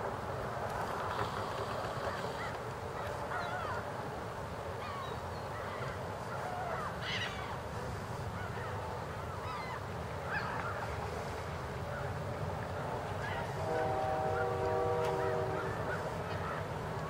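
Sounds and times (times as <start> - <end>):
geese honking: 13.2 - 16.7.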